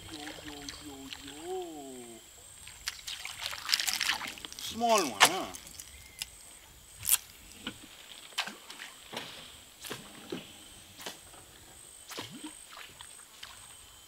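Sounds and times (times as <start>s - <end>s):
lure popping and splashing water: 2.7s - 6.4s.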